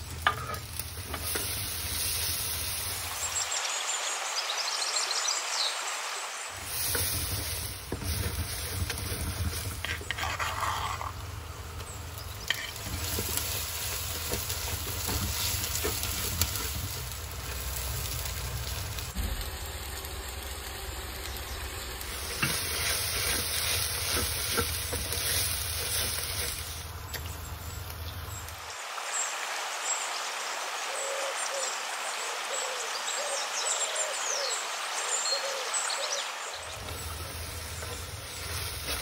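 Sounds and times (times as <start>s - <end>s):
onions sizzling in oil: 0.0s - 4.0s, 6.5s - 28.6s, 35.3s - 39.0s
wooden spatula scraping pot: 0.2s - 1.6s, 6.6s - 11.4s, 12.4s - 18.0s, 22.1s - 26.8s, 36.8s - 39.0s.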